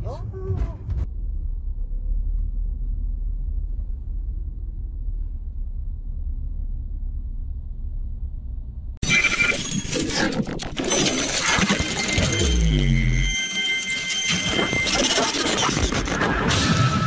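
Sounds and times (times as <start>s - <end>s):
car engine and road noise: 0.0s - 9.0s.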